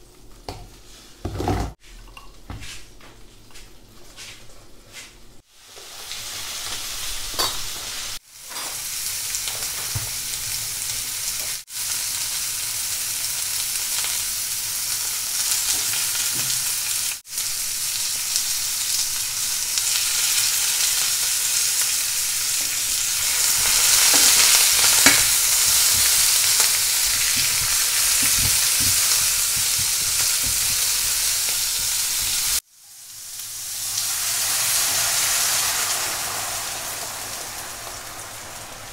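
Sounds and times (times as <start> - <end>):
vegetables sizzling in oil: 5.4 - 38.9
water poured into hot pan: 33.5 - 38.9.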